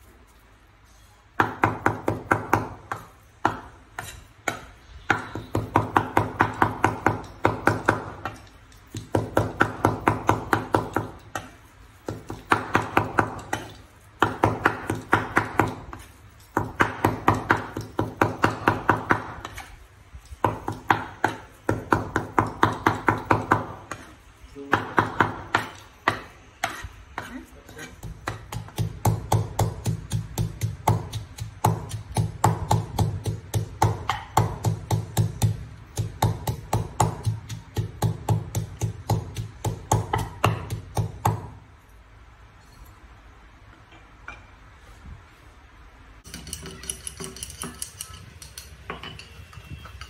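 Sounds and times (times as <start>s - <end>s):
cleaver chopping on wooden board: 1.4s - 19.7s, 24.7s - 41.5s.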